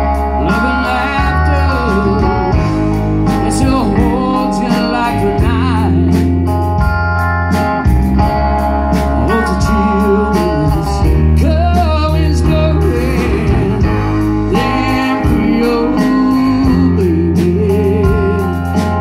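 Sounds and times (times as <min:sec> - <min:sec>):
person singing: 0:00.0 - 0:06.3, 0:08.9 - 0:19.0
bass: 0:00.0 - 0:19.0
drums: 0:00.0 - 0:19.0
guitars: 0:00.0 - 0:19.0.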